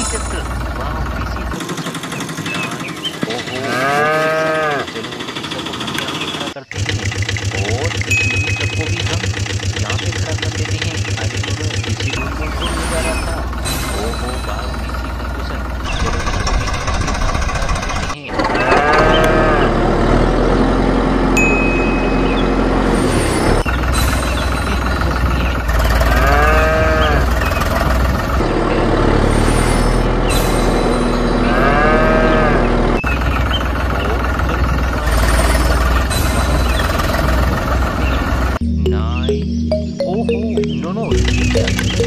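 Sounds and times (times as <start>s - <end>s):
cow mooing: 3.6s - 5.0s, 18.6s - 20.0s, 25.8s - 27.4s, 31.4s - 32.8s.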